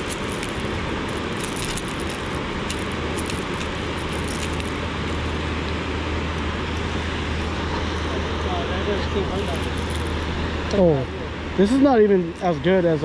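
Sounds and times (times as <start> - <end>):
metal pliers and hooks clinking: 0.0 - 5.4
steady rushing noise: 0.0 - 13.0.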